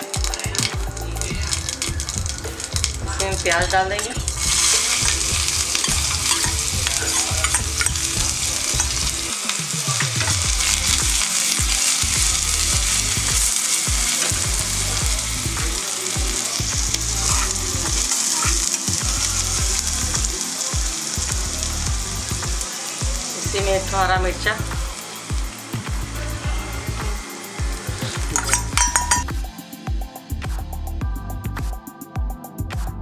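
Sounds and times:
onions sizzling in hot oil: 0:00.0 - 0:30.4
utensil clicking against pan: 0:04.4 - 0:09.1.

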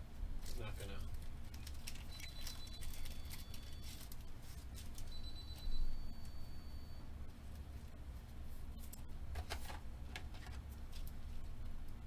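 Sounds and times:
foil wrapper crinkling: 0:00.4 - 0:05.1.

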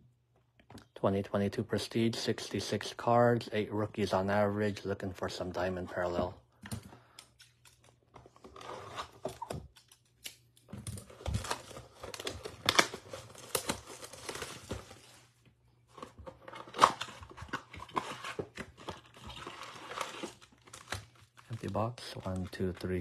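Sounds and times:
plastic wrap tearing and crinkling: 0:10.8 - 0:15.2, 0:16.4 - 0:23.0.

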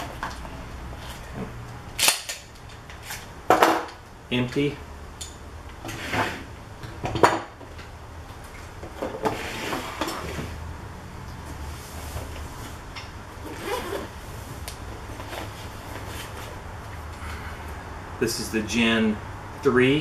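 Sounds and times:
canvas bag rustling: 0:13.4 - 0:14.2.

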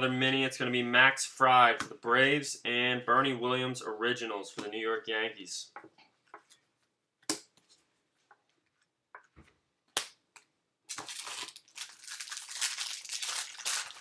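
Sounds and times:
foil card pack crinkling and tearing: 0:10.9 - 0:14.0.

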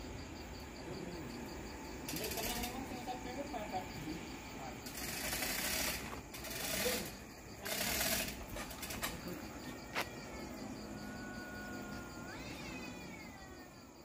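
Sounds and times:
rattling noise: 0:02.0 - 0:03.1, 0:04.8 - 0:09.4
cat yowling: 0:09.9 - 0:13.8.

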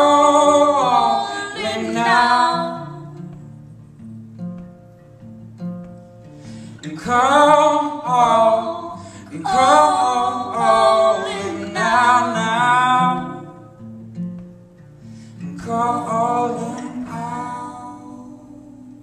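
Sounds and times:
man and woman singing: 0:00.0 - 0:03.4, 0:06.8 - 0:13.6, 0:15.4 - 0:19.0
strummed acoustic guitar: 0:00.0 - 0:19.0.

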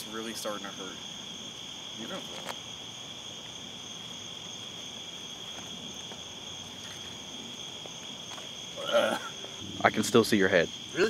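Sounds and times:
night insects chorus: 0:00.0 - 0:11.0.

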